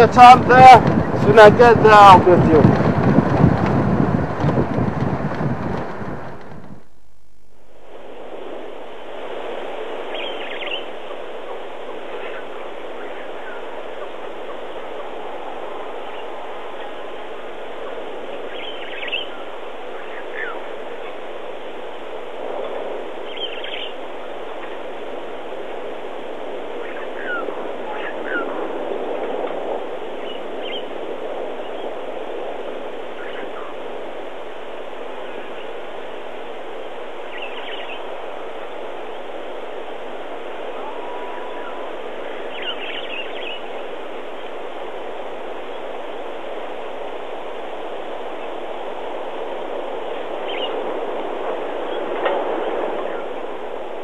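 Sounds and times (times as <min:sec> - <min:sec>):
vehicle driving noise: 0:00.0 - 0:06.8
falling bird calls: 0:10.1 - 0:15.1, 0:18.3 - 0:21.2, 0:23.2 - 0:24.9, 0:26.7 - 0:28.6, 0:30.1 - 0:32.0, 0:33.1 - 0:33.8, 0:37.2 - 0:39.3, 0:40.6 - 0:44.6, 0:50.2 - 0:50.8.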